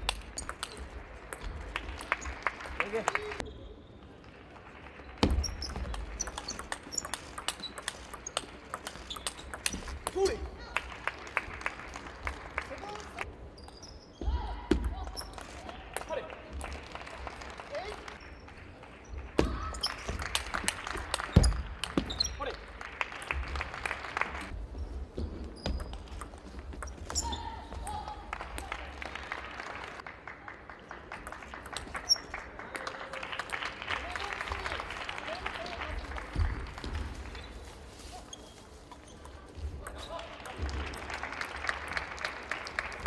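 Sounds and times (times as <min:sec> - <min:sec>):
shoes squeaking on floor: 0:05.2 - 0:10.4, 0:13.5 - 0:15.4, 0:18.2 - 0:20.3, 0:21.3 - 0:22.4, 0:24.8 - 0:27.9, 0:36.9 - 0:40.3
table tennis ball clicking: 0:05.5 - 0:10.2.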